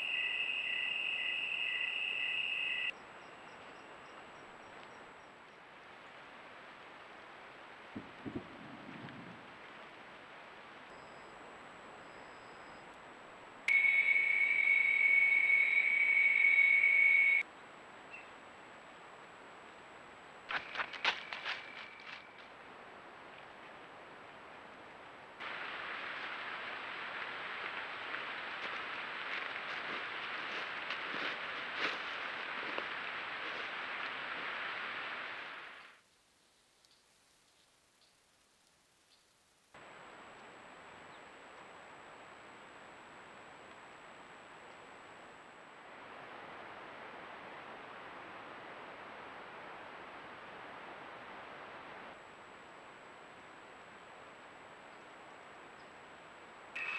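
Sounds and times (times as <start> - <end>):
crickets trilling: 0.0 - 5.6, 13.7 - 17.4, 20.5 - 22.5
pulsing cricket chirp: 0.0 - 5.6, 10.9 - 12.9, 13.7 - 22.4
faint outdoor ambience: 0.0 - 56.9
steady hiss: 0.0 - 56.9.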